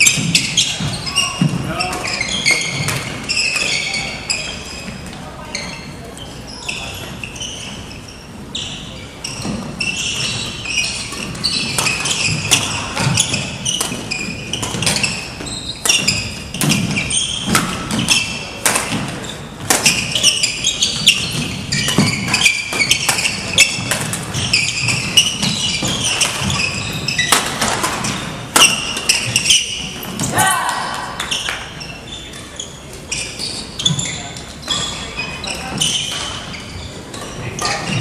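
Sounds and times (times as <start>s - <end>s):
shoes squeaking on wooden floor: 0.0s - 38.0s
rackets hitting shuttlecock: 11.0s - 31.7s.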